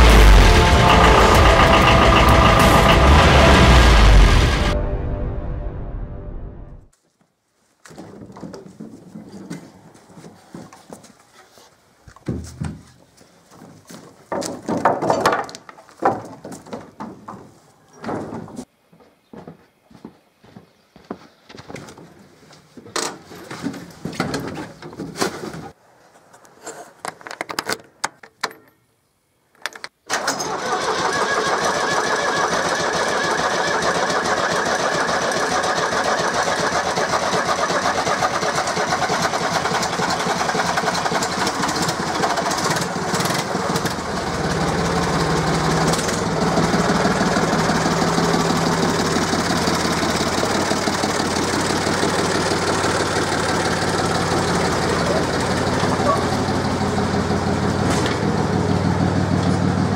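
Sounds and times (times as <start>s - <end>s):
tractor diesel engine idling: 0.0s - 4.8s, 30.1s - 59.9s
clunks and knocks: 14.3s - 18.7s.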